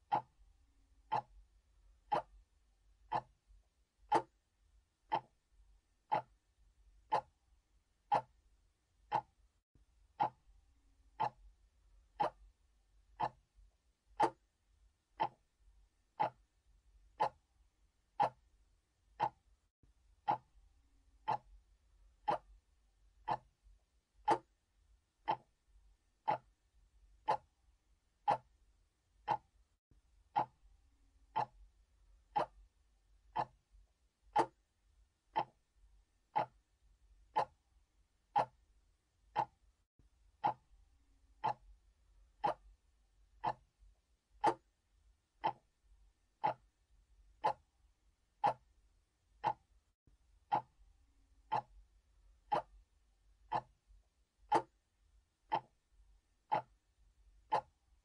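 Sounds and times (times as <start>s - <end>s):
mechanical clock ticking: 0.0s - 0.4s, 1.0s - 1.4s, 2.1s - 2.4s, 3.1s - 3.4s, 4.1s - 4.4s, 5.1s - 5.4s, 6.1s - 6.4s, 7.0s - 7.4s, 8.1s - 8.4s, 9.0s - 9.4s, 10.1s - 10.5s, 11.1s - 11.5s, 12.2s - 12.5s, 13.2s - 13.5s, 14.1s - 14.5s, 15.2s - 15.5s, 16.2s - 16.5s, 17.1s - 17.5s, 18.1s - 18.5s, 19.1s - 19.5s, 20.2s - 20.6s, 21.2s - 21.6s, 22.2s - 22.6s, 23.2s - 23.6s, 24.2s - 24.6s, 25.2s - 25.6s, 26.2s - 26.6s, 27.2s - 27.6s, 28.2s - 28.6s, 29.2s - 29.6s, 30.3s - 30.6s, 31.3s - 31.7s, 32.3s - 32.7s, 33.3s - 33.6s, 34.3s - 34.6s, 35.3s - 35.7s, 36.3s - 36.7s, 37.3s - 37.6s, 38.3s - 38.7s, 39.3s - 39.6s, 40.4s - 40.7s, 41.4s - 41.8s, 42.4s - 42.8s, 43.4s - 43.7s, 44.4s - 44.7s, 45.4s - 45.8s, 46.4s - 46.7s, 47.4s - 47.7s, 48.4s - 48.8s, 49.4s - 49.7s, 50.5s - 50.8s, 51.4s - 51.8s, 52.5s - 52.9s, 53.5s - 53.8s, 54.5s - 54.8s, 55.5s - 55.8s, 56.5s - 56.8s, 57.5s - 57.8s.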